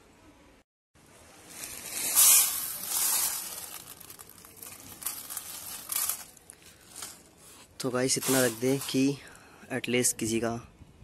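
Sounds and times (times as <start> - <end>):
grains rattling on metal plate: 1.8 - 7.3, 8.1 - 9.2.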